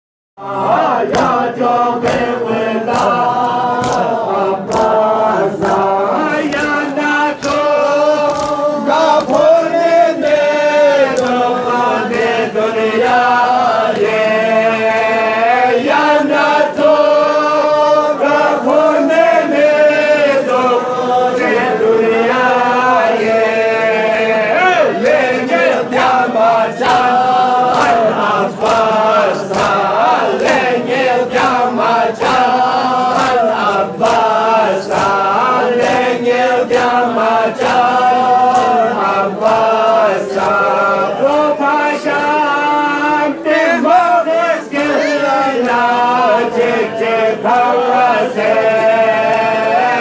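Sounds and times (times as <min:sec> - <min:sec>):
men chanting in unison: 0:00.4 - 0:50.0
sharp rhythmic slaps: 0:00.4 - 0:50.0.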